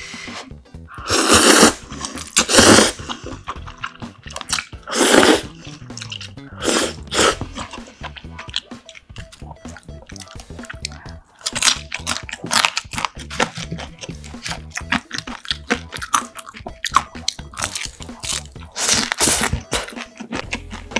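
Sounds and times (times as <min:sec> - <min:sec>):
loud noodle slurping: 0:01.0 - 0:03.9, 0:04.5 - 0:08.4
wet chewing: 0:01.2 - 0:20.9.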